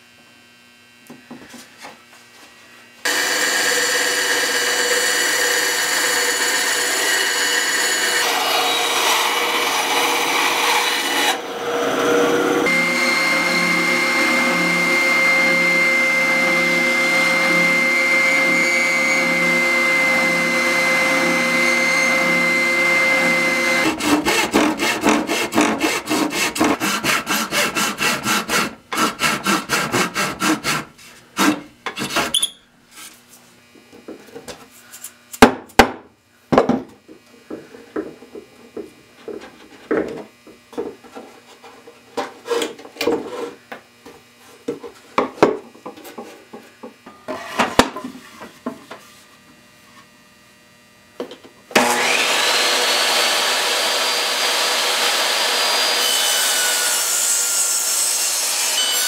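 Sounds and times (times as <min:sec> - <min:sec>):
spindle sander whining: 0:03.0 - 0:26.5, 0:51.7 - 0:57.4
bandsaw cutting wood: 0:03.0 - 0:32.4, 0:51.7 - 0:59.0
rasping strokes on wood: 0:23.6 - 0:32.3.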